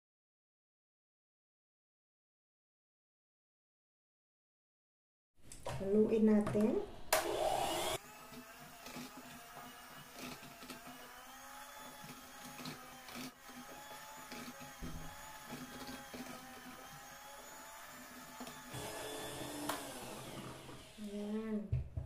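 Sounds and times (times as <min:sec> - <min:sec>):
electric hand mixer whining: 0:07.1 - 0:21.4.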